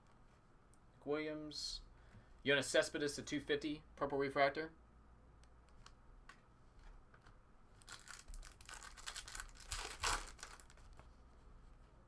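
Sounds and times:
foil pack tearing and crinkling: 7.8 - 10.8.

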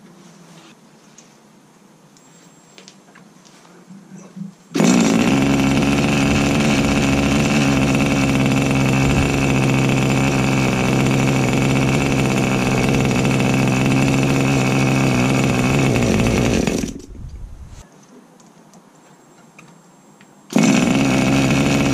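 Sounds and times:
model aeroplane engine running: 4.8 - 17.2, 20.5 - 21.9.

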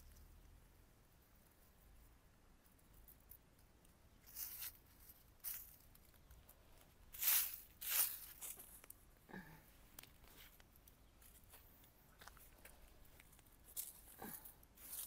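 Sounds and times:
dry grass rustling and tearing: 3.0 - 9.1, 9.9 - 15.0.

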